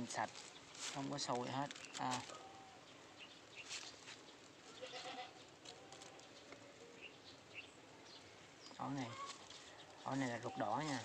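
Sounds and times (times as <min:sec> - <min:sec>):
faint animal calls: 0:02.2 - 0:03.1, 0:04.6 - 0:07.1, 0:08.8 - 0:11.0.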